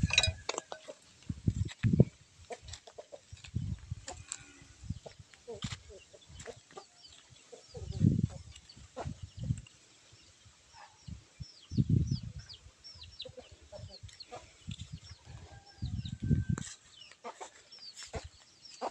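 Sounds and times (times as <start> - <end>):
chicks peeping: 4.9 - 10.4, 11.0 - 18.9.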